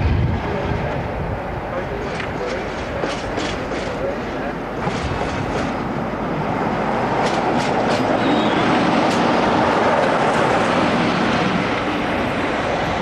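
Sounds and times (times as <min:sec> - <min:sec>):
diesel locomotive engine running: 0:00.0 - 0:13.0
wheels clicking over rail joints: 0:01.8 - 0:13.0.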